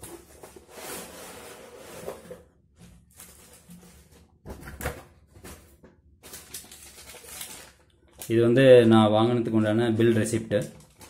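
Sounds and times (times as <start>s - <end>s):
packaging rustling and crinkling: 3.0s - 9.0s, 10.0s - 11.0s.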